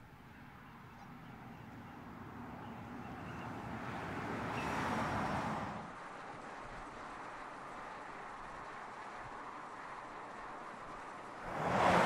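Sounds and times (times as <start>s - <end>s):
car driving past: 11.4s - 12.0s.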